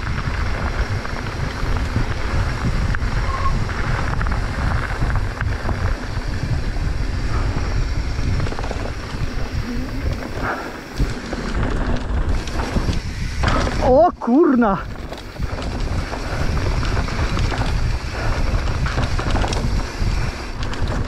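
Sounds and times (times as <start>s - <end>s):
bike tyres rumbling on trail: 0.0s - 21.0s
wind buffeting microphone: 0.0s - 21.0s.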